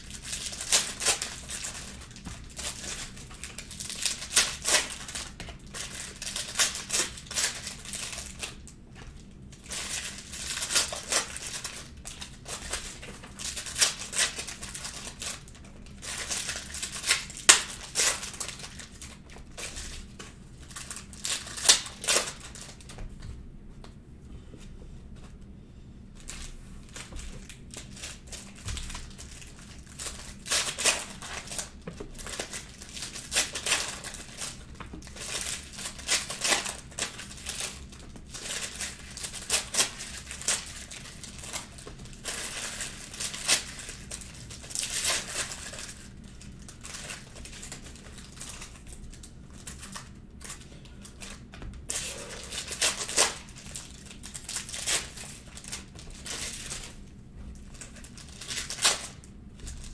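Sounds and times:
foil wrappers crinkling and tearing: 0.0s - 23.0s, 26.2s - 59.9s.

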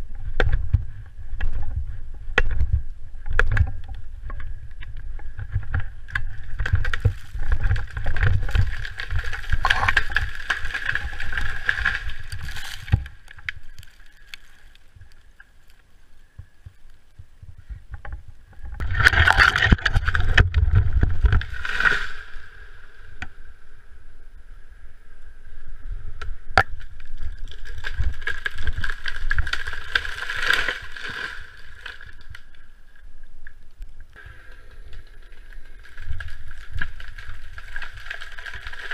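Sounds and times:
wind rumble on microphone: 0.0s - 13.9s, 16.4s - 21.7s.

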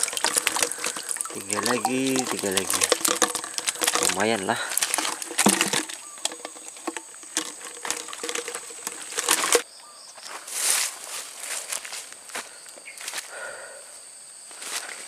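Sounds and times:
plastic fish trap rattling: 0.0s - 9.6s
rustling: 0.0s - 9.6s
water pattering: 0.0s - 9.6s.

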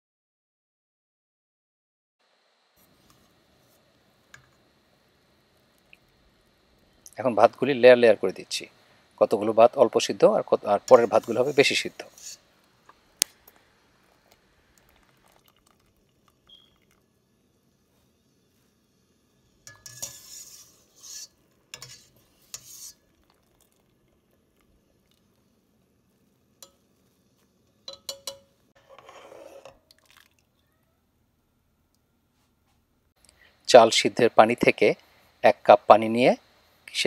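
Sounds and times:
metal skimmer scraping a pot: 10.7s - 12.5s, 19.6s - 23.1s, 27.8s - 30.2s.

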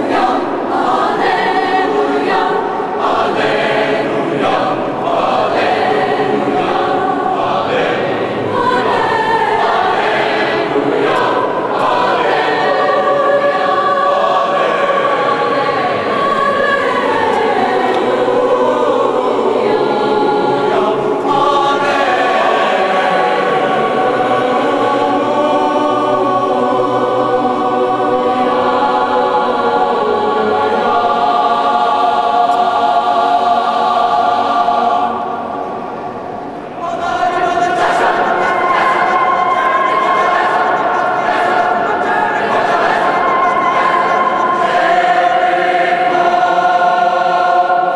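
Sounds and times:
children's choir singing: 0.0s - 47.9s.

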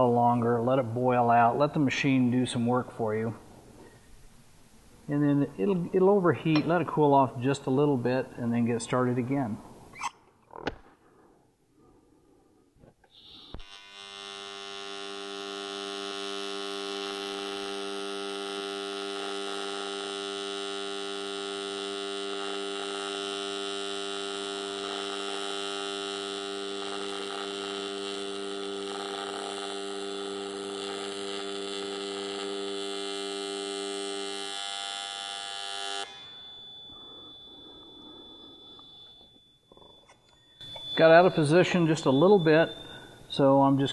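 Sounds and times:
welding arc buzzing: 13.1s - 43.9s.

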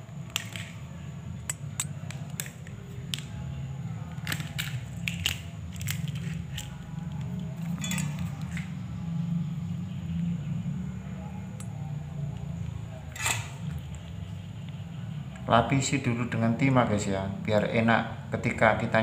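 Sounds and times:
steady low hum: 0.0s - 19.0s
wire being stripped: 4.2s - 8.7s.

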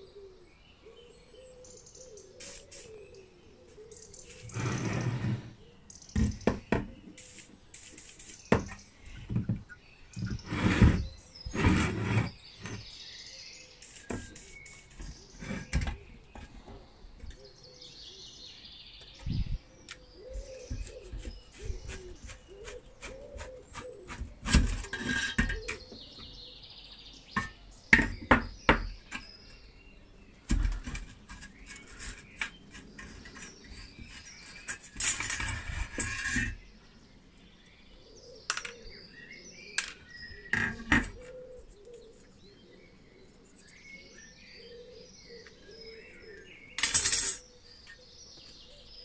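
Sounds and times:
small birds chirping: 0.0s - 49.0s
tools clicking and scraping on metal: 21.9s - 25.9s, 30.6s - 36.6s, 46.8s - 48.0s.

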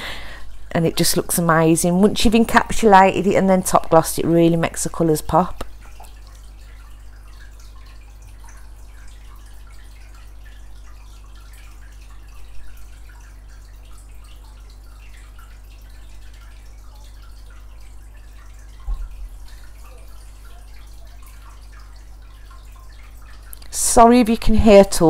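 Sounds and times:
steady low hum: 4.2s - 24.1s
faint small ticks and clicks: 5.5s - 23.8s.

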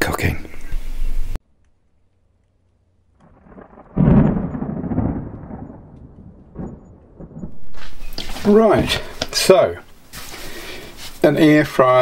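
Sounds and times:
deep boom: 3.2s - 9.0s
low rumble: 3.2s - 9.1s.

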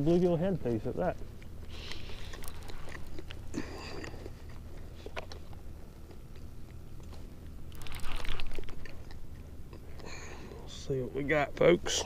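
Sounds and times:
fishing reel cranking: 7.7s - 8.6s.

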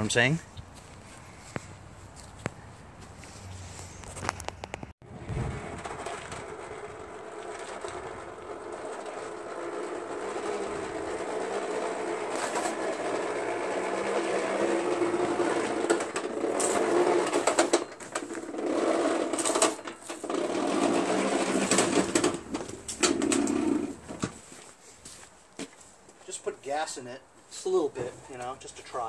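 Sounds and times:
sharp knocks and clatters: 4.1s - 24.4s
snowblower rolling and rattling: 5.0s - 24.4s.

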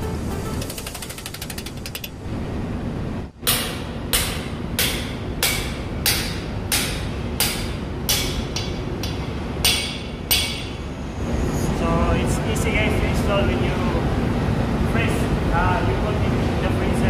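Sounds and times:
hammer striking steel tool: 3.4s - 10.8s.

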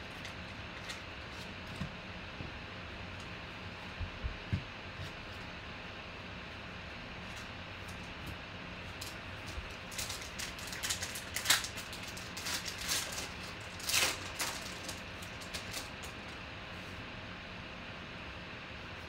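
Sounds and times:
cards rustling: 8.9s - 16.2s
wrapper crinkling and tearing: 8.9s - 16.2s.

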